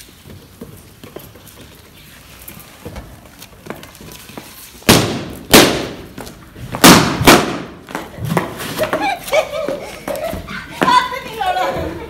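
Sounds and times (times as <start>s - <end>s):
balloons bursting: 4.8s - 7.9s.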